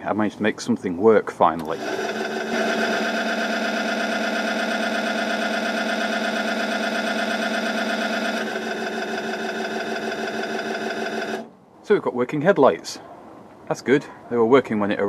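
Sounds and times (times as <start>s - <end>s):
dynamo whirring hum: 1.6s - 11.7s.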